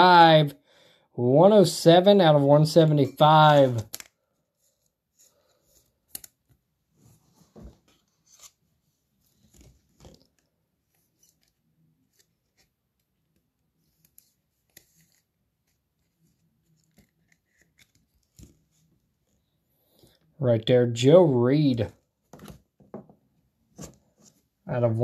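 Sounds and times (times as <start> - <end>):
trading card rustling and clicking: 3.8 - 6.6, 9.3 - 18.9.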